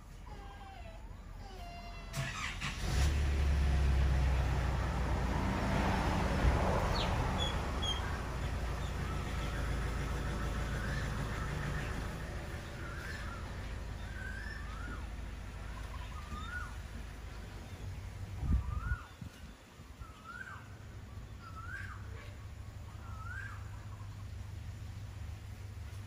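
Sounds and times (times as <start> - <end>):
vehicle engine humming: 0.0 - 26.0
puppy whimpering: 0.1 - 2.8.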